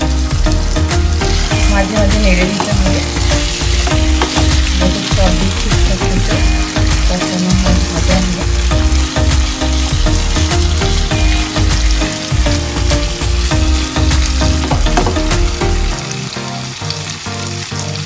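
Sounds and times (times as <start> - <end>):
background music with beat: 0.0 - 18.0
fish sizzling in oil: 0.0 - 18.0
wooden spatula scraping pan: 2.4 - 4.8.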